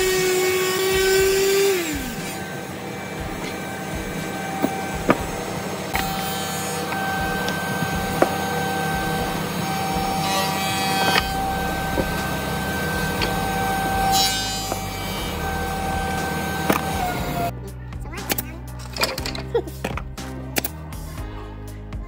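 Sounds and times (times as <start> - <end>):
power tool motor whine: 0.0 - 17.5
low hum: 0.0 - 18.1.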